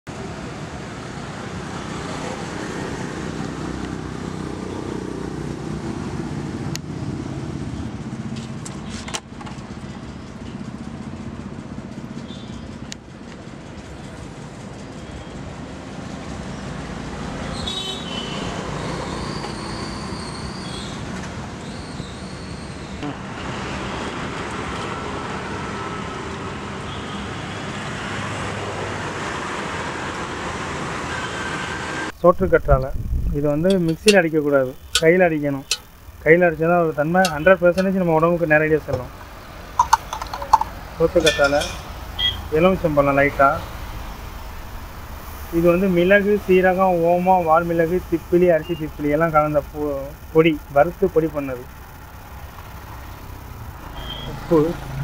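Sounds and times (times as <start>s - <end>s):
road traffic: 0.0s - 55.0s
vehicle engine running: 32.1s - 55.0s
sharp clicks: 32.7s - 42.4s.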